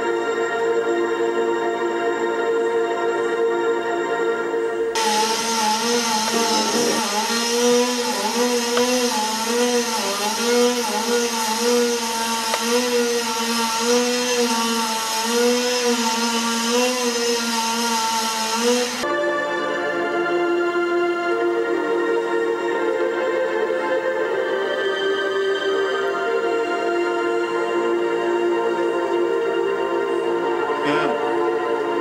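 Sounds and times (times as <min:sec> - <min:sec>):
chainsaw cutting: 0:05.0 - 0:19.0.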